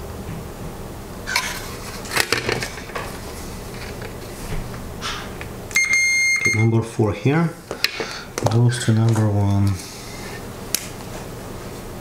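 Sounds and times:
continuity beeper tone: 5.7s - 6.9s.

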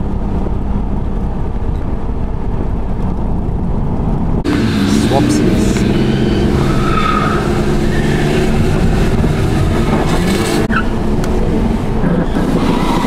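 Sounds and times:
car engines running hard: 0.0s - 13.0s
tyre squeals: 6.0s - 8.8s.

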